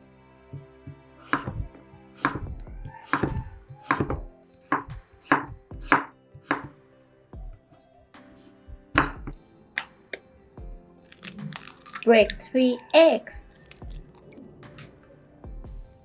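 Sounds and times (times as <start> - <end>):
knife chopping on wooden board: 0.6 - 6.8, 9.0 - 9.4.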